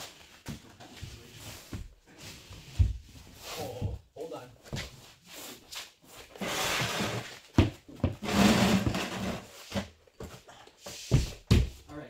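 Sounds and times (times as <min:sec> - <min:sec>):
drywall sheet scraping against wall: 0:06.4 - 0:07.4, 0:08.2 - 0:09.5.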